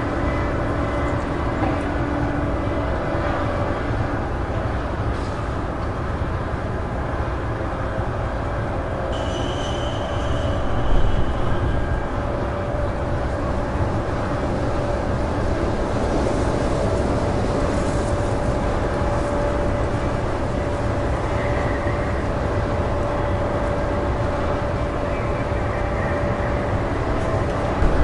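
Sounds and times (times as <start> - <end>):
high wind whistle: 8.5 - 15.7
low steady whistle: 9.1 - 12.9
wind blowing with deep rumble: 10.1 - 28.0.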